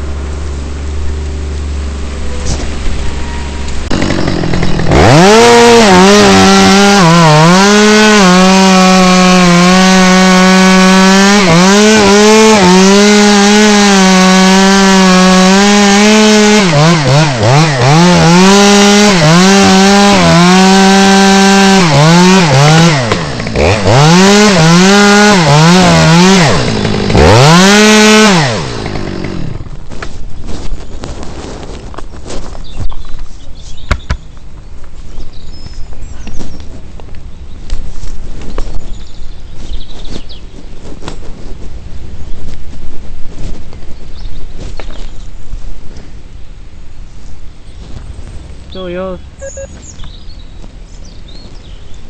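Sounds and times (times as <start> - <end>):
chainsaw cutting wood: 0.0 - 30.6.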